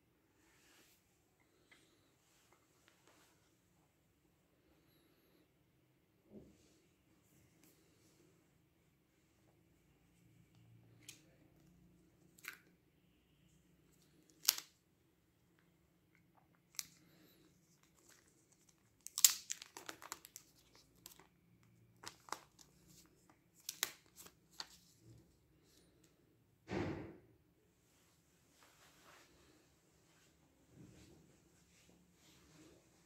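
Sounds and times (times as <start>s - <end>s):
plastic film crinkling: 14.3s - 14.8s, 16.7s - 24.9s.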